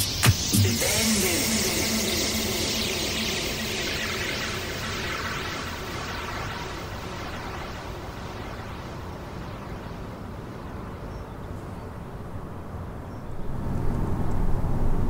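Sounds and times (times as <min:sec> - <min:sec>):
soft hiss: 0:00.0 - 0:14.7
low rumble: 0:13.3 - 0:15.0.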